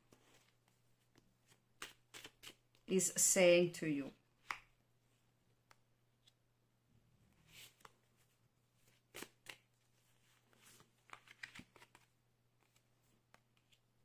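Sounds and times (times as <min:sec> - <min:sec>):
cards swishing: 0:01.5 - 0:02.6.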